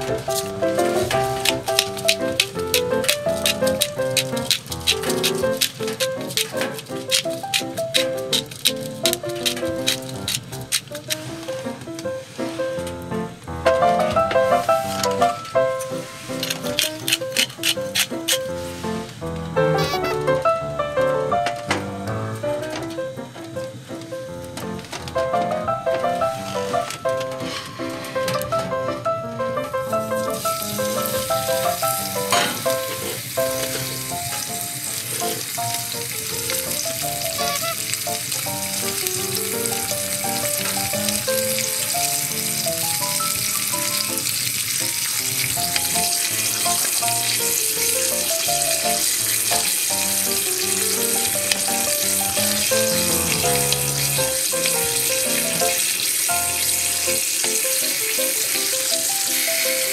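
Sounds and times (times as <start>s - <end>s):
steak sizzling in a frying pan: 0.0s - 13.0s, 14.0s - 20.2s, 29.7s - 59.9s
soft background music: 22.3s - 59.9s.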